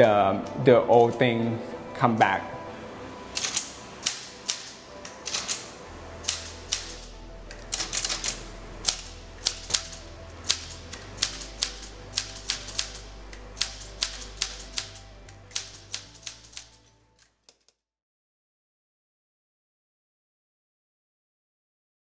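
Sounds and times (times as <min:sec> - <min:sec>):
background music with low bass: 0:00.0 - 0:17.5
typewriter keys clacking: 0:03.4 - 0:13.0, 0:13.6 - 0:17.8.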